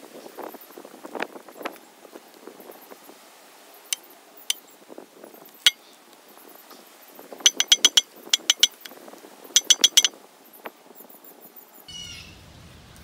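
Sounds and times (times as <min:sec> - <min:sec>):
metal-on-metal clinking: 0:07.5 - 0:08.9, 0:09.6 - 0:10.1.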